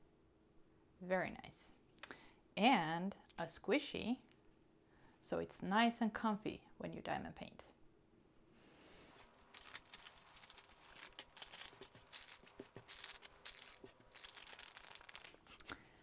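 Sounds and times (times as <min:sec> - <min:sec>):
plastic bag crinkling: 0:09.1 - 0:15.8.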